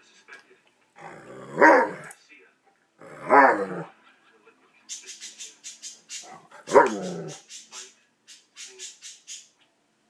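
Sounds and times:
dog barking: 0:01.6 - 0:02.1, 0:03.2 - 0:03.9, 0:06.3 - 0:07.4.

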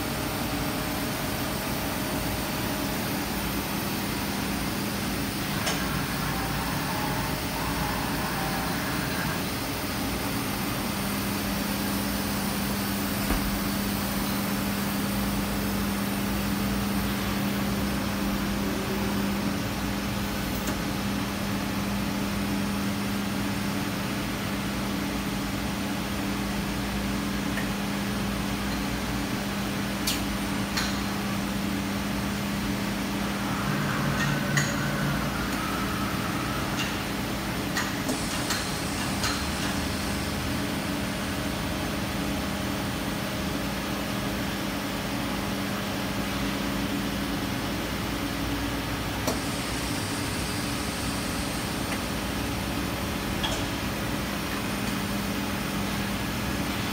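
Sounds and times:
machine electrical hum: 0:00.0 - 0:56.9.

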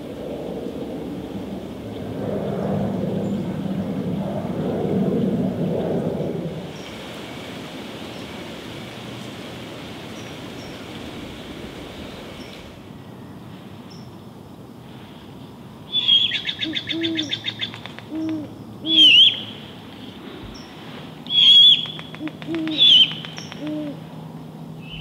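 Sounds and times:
owls hooting: 0:15.9 - 0:19.4, 0:21.3 - 0:24.0.

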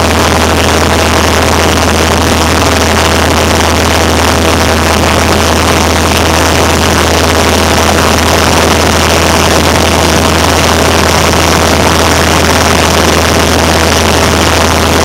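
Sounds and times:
airplane engine droning in cabin: 0:00.0 - 0:15.0.

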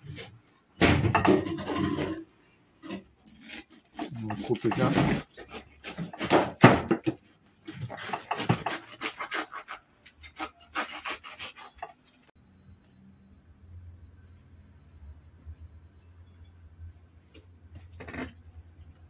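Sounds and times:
knife sawing through fruit rind: 0:03.4 - 0:06.2, 0:07.9 - 0:12.0.

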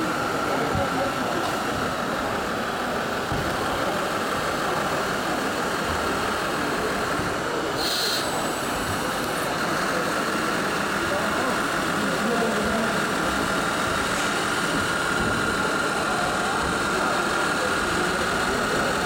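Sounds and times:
exhibition hall background noise: 0:00.0 - 0:19.0
model truck engine: 0:00.0 - 0:19.0
short hiss: 0:07.8 - 0:08.3.

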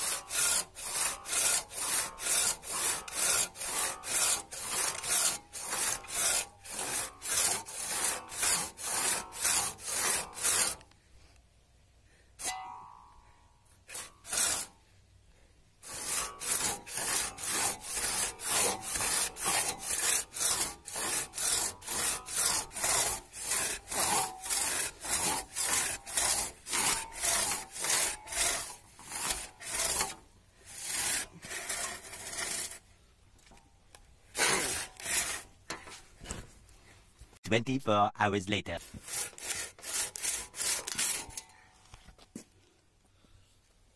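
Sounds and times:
hand saw cutting through log: 0:00.0 - 0:10.9, 0:13.9 - 0:14.8, 0:15.8 - 0:32.9, 0:34.3 - 0:36.4, 0:38.8 - 0:41.5.

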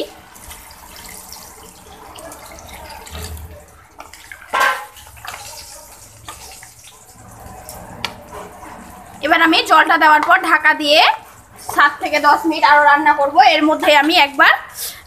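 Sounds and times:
water poured into curry: 0:00.2 - 0:08.3
wooden spatula stirring curry: 0:00.3 - 0:12.4.

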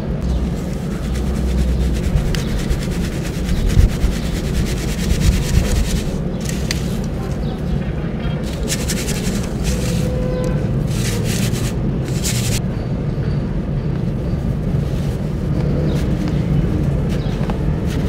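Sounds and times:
steady low rumble: 0:00.0 - 0:18.0
dry sand showering onto wet sand: 0:00.4 - 0:07.1, 0:08.4 - 0:10.1, 0:10.8 - 0:12.6.

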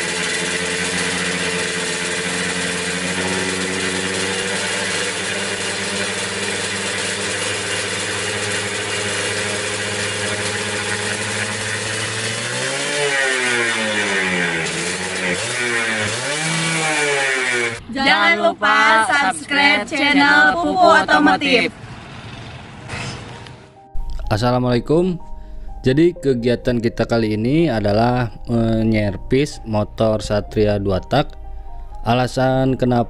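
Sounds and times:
two-stroke engine idling and revving: 0:00.0 - 0:23.8.

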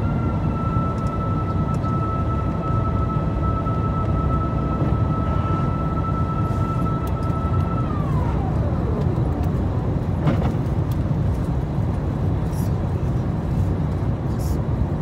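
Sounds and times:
high whine sliding down: 0:00.0 - 0:10.2
aircraft cabin low rumble: 0:00.0 - 0:15.0.

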